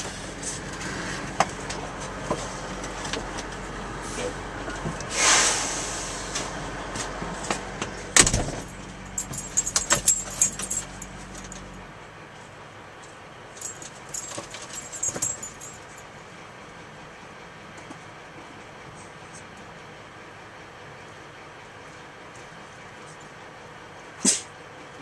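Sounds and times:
truck engine idling: 0:06.8 - 0:12.2
light metallic jangling: 0:08.3 - 0:11.8, 0:13.6 - 0:16.1.

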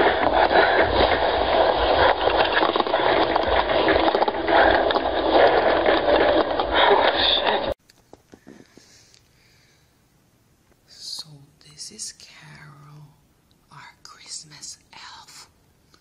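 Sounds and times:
low rumbles: 0:00.0 - 0:07.8.

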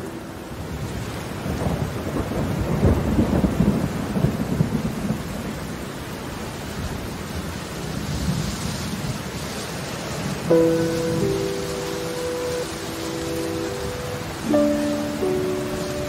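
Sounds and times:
steady rain: 0:00.0 - 0:16.0
low thunder rumble: 0:00.6 - 0:05.5.

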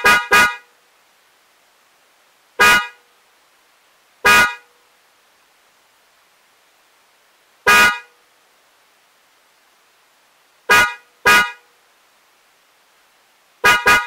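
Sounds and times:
car horn toots: 0:00.0 - 0:00.7, 0:02.6 - 0:03.0, 0:04.2 - 0:04.7, 0:07.7 - 0:08.1, 0:10.7 - 0:11.6, 0:13.6 - 0:14.0.

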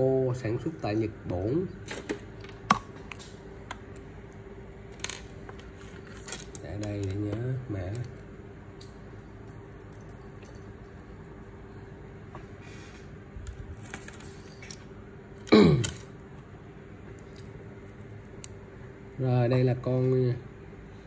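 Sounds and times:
faint steady hum: 0:00.0 - 0:21.0
person clearing throat: 0:15.5 - 0:16.0.

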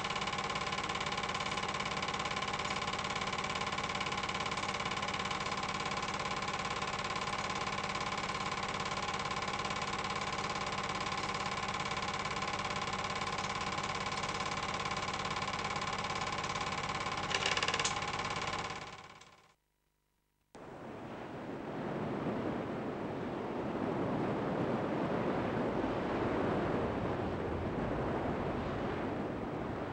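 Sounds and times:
film projector clatter and whirr: 0:00.0 - 0:19.6.

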